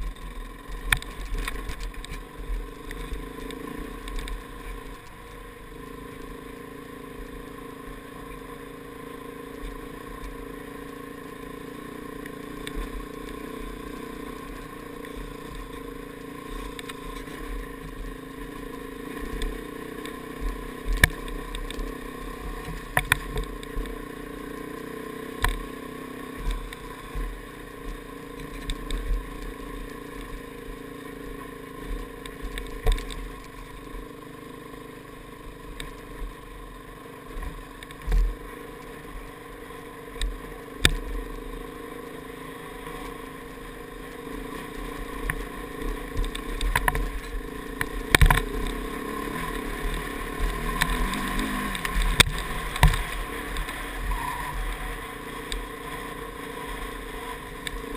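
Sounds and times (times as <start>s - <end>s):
knocks and clatter over stones: 0.0s - 5.2s, 19.2s - 24.0s, 32.0s - 34.2s, 45.2s - 54.0s
motorcycle engine running: 0.0s - 57.9s.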